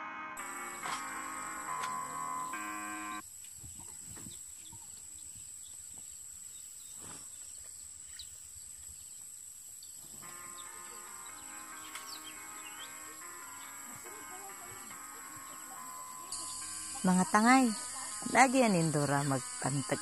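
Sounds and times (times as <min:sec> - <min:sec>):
high-pitched hum: 0:00.0 - 0:03.2, 0:10.2 - 0:20.0
instrumental music: 0:00.0 - 0:03.2, 0:10.2 - 0:20.0
faint chirps: 0:00.4 - 0:20.0.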